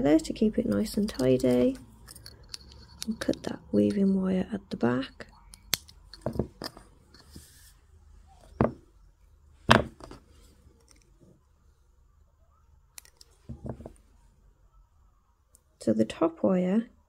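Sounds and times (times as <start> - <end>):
tools clicking and tapping: 0.2 - 4.2, 5.2 - 7.4.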